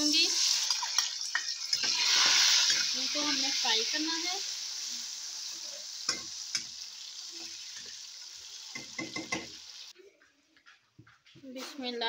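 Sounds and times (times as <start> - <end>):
tomatoes sizzling in oil: 0.0 - 10.0
spoon scraping and knocking pan: 0.6 - 3.0, 6.1 - 6.8, 8.7 - 9.6.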